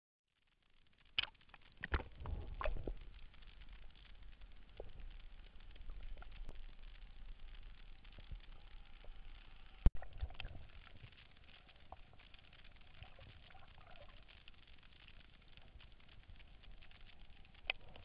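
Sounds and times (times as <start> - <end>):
faint underwater clicks: 0.3 - 18.0
muffled underwater water noise: 0.3 - 18.0
water splashes: 1.2 - 14.3.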